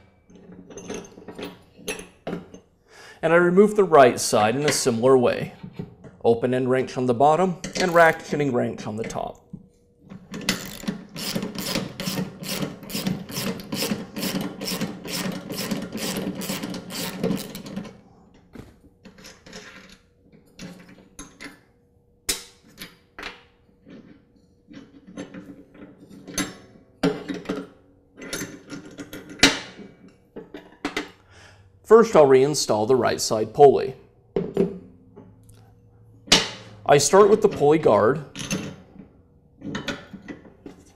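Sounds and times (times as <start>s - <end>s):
ratcheting socket wrench clicking: 10.5s - 17.6s.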